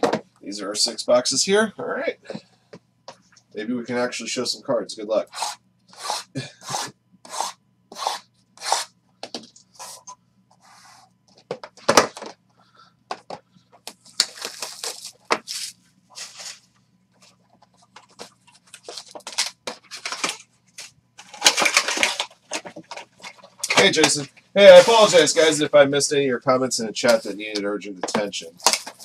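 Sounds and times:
foil wrapper crinkling and tearing: 0:14.1 - 0:16.6, 0:18.7 - 0:24.2.

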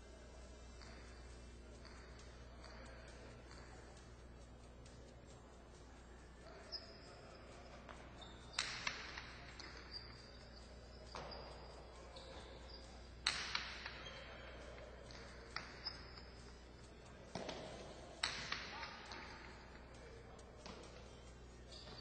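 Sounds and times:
faint high squeaks: 0:06.4 - 0:13.0, 0:13.6 - 0:17.8, 0:18.8 - 0:22.0
ball cracking against walls: 0:17.4 - 0:19.3.

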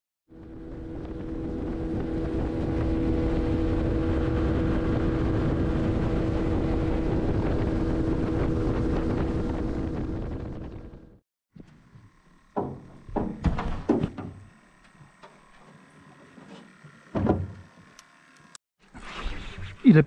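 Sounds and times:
outboard motor droning: 0:00.3 - 0:18.6
wind buffeting microphone: 0:00.4 - 0:11.1.

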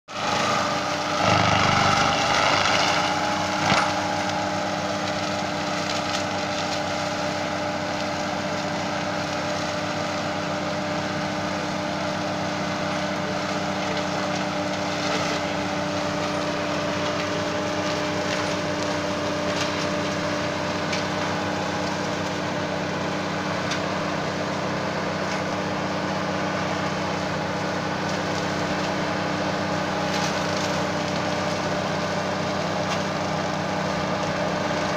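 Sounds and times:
tractor engine under load: 0:00.1 - 0:10.0
forestry mulcher shredding brush: 0:00.1 - 0:34.9.

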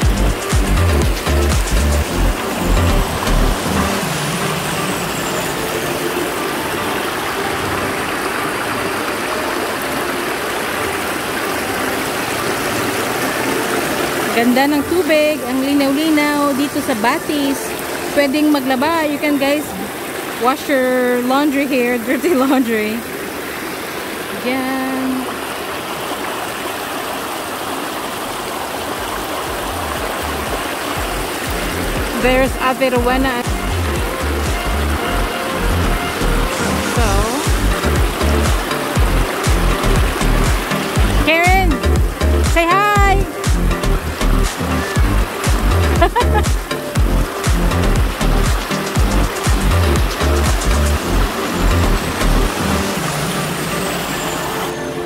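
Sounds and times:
background music with bass beat: 0:00.0 - 0:04.5, 0:29.7 - 0:52.9
river rushing over rocks: 0:00.0 - 0:55.0.

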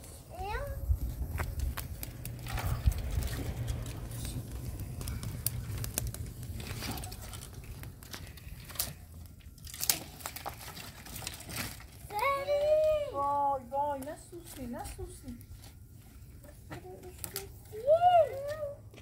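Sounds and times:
wood fire crackling and popping: 0:00.0 - 0:19.0
low rumble: 0:00.6 - 0:09.6.

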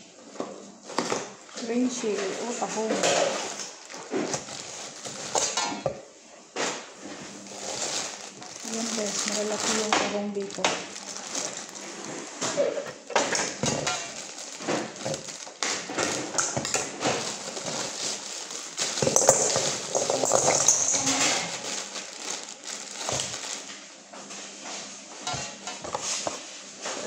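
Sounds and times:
plastic bag crinkling: 0:01.0 - 0:05.9, 0:07.0 - 0:23.9, 0:25.2 - 0:26.5
mussel shells clattering in metal bowl: 0:02.0 - 0:05.8, 0:07.3 - 0:23.7, 0:25.3 - 0:26.4.

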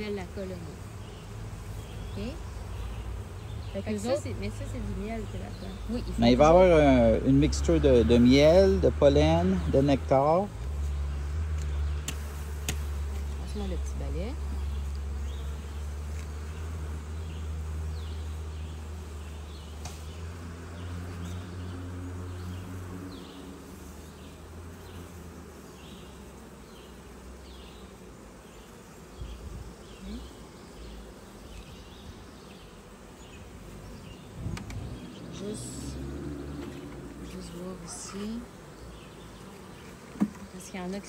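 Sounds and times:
honeybees buzzing: 0:00.0 - 0:41.0.

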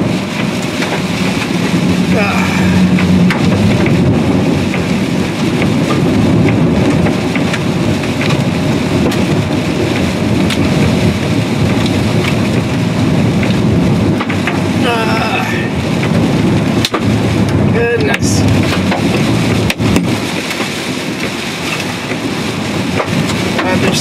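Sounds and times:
hail clattering on a car roof: 0:00.0 - 0:24.0.

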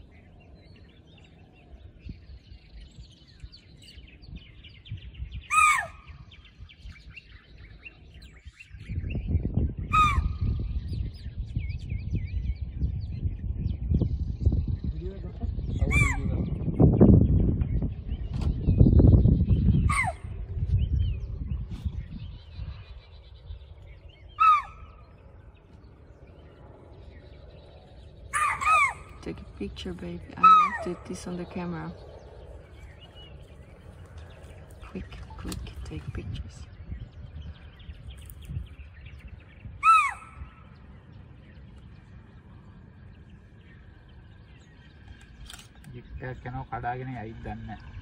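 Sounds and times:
faint low rumble: 0:00.0 - 0:48.0
deer alarm call: 0:05.5 - 0:06.0, 0:24.4 - 0:24.8, 0:28.3 - 0:29.2, 0:39.8 - 0:40.4.

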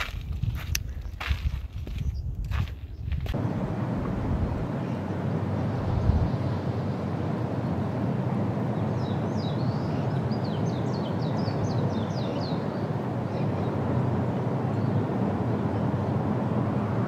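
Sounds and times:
wind across microphone: 0:00.0 - 0:09.8.

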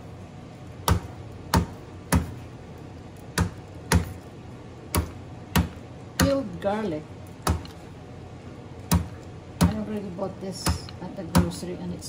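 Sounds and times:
mallet crushing garlic on board: 0:00.8 - 0:02.4, 0:03.3 - 0:04.2, 0:04.9 - 0:06.4, 0:07.4 - 0:07.8, 0:08.9 - 0:09.9, 0:10.6 - 0:11.6.

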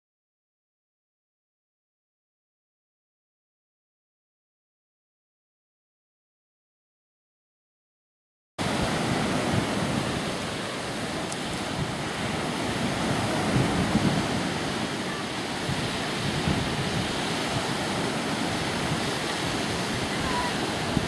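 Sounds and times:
small waves washing up a beach: 0:08.6 - 0:21.0
wind rumbling on microphone: 0:08.6 - 0:21.0.

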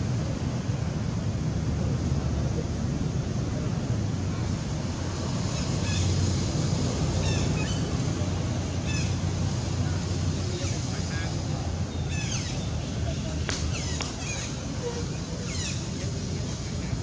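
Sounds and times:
high-pitched chirping calls: 0:07.2 - 0:08.0, 0:11.9 - 0:16.2.

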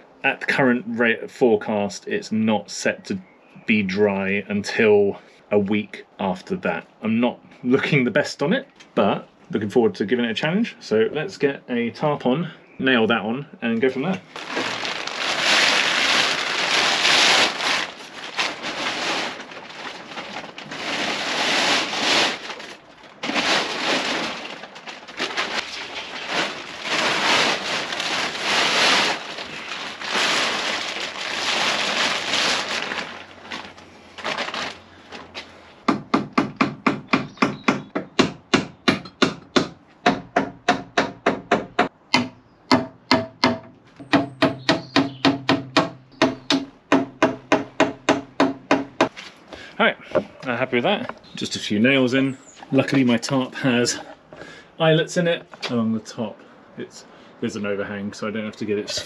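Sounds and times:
plastic tarpaulin rustling: 0:13.9 - 0:35.8, 0:49.0 - 0:54.6.

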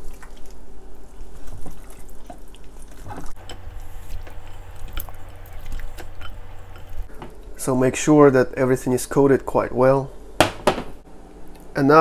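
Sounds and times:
hands squelching in sauce: 0:01.4 - 0:07.1
low steady hum: 0:02.9 - 0:12.0.

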